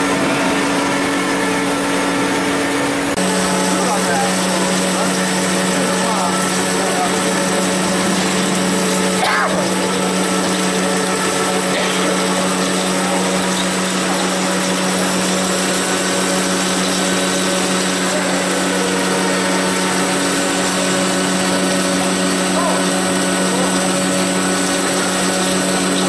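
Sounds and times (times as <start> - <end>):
drill cutting metal: 0.0 - 26.0
machine hum: 0.0 - 26.0.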